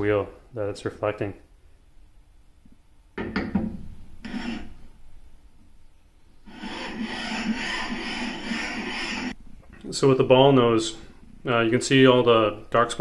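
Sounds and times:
steel bar scraping on abrasive stone: 4.2 - 4.8, 6.5 - 9.4.

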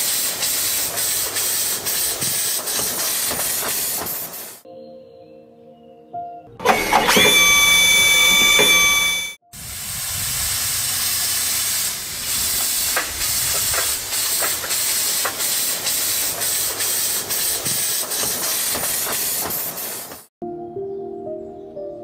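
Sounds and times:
wheels clicking on track: 12.3 - 20.3.

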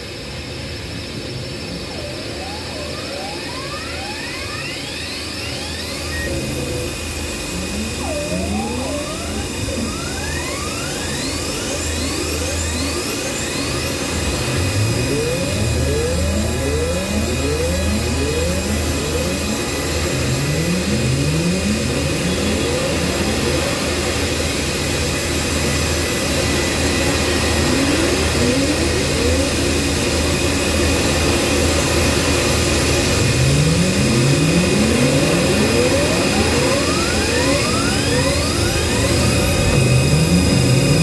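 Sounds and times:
electronic noise hiss: 1.1 - 41.0
short rising electronic sweeps: 4.9 - 24.6, 26.5 - 30.2, 32.8 - 41.0
low hum: 5.4 - 41.0.

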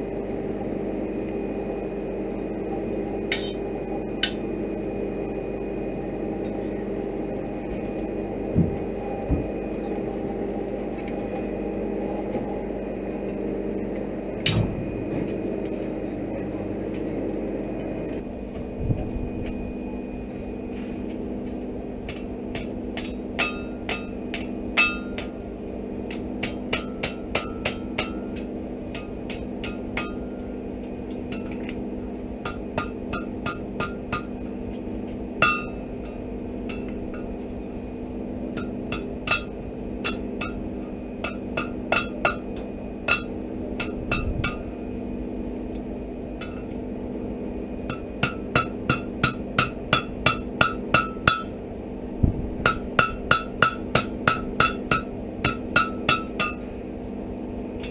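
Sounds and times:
low hum: 0.0 - 57.9
hammer striking iron on anvil: 3.3 - 4.5, 22.0 - 31.8, 32.4 - 34.8, 35.4 - 37.4, 38.5 - 44.9, 46.4 - 46.8, 47.8 - 51.6, 52.6 - 56.8.

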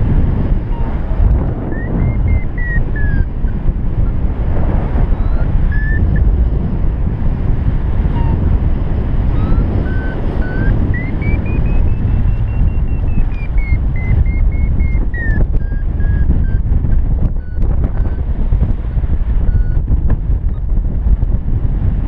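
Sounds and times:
wind rushing over microphone: 0.0 - 22.0
variometer beeping: 0.5 - 4.3, 5.0 - 6.3, 8.0 - 18.3, 19.4 - 20.7.

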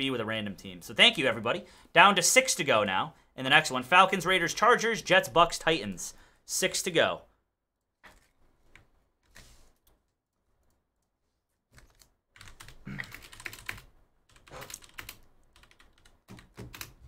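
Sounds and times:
computer keyboard typing: 11.7 - 17.0.

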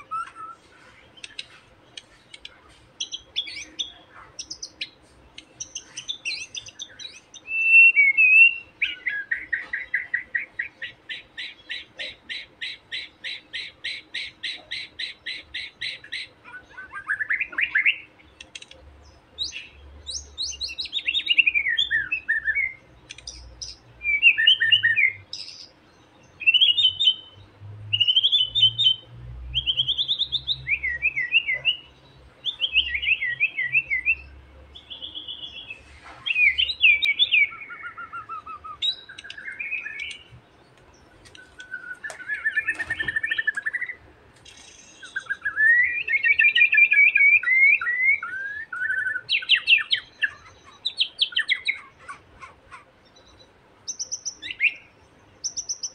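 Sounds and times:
bird singing whistled phrases: 0.0 - 0.6, 5.6 - 10.9, 20.4 - 22.8, 24.0 - 25.6, 26.4 - 29.0, 29.6 - 35.7, 36.3 - 40.2, 41.4 - 44.0, 45.0 - 51.8.

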